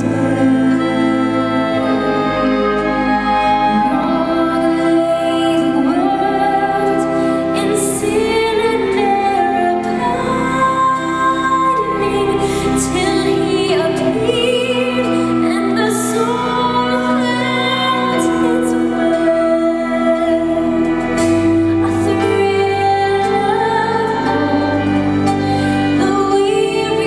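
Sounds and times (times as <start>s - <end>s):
orchestral accompaniment: 0.0s - 27.0s
woman singing with vibrato: 0.0s - 27.0s.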